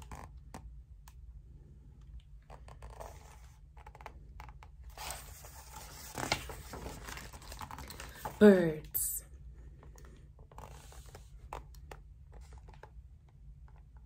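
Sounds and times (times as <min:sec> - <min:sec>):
book pages rustling: 0:02.4 - 0:08.7, 0:10.4 - 0:13.0.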